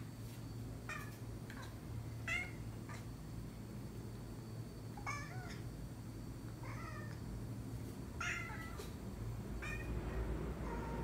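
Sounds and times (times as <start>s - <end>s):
cat meowing: 2.3s - 3.0s, 8.2s - 8.9s.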